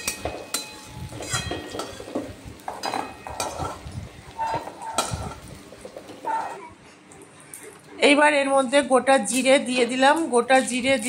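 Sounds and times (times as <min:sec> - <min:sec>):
hot oil sizzling: 0:00.0 - 0:06.6
spatula scraping a wok: 0:00.0 - 0:06.7.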